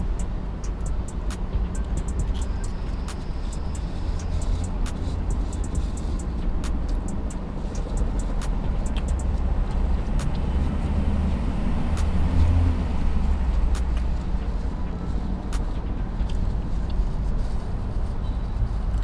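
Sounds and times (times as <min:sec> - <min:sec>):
sharp clicks: 0:00.0 - 0:10.5
car engine idling: 0:00.0 - 0:19.0.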